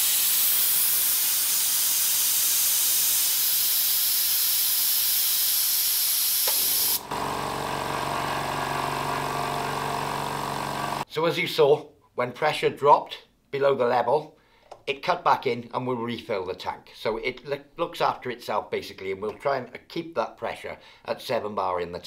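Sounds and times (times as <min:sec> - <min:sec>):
compressed air hissing: 0:00.0 - 0:07.1
compressor motor humming: 0:06.4 - 0:11.1.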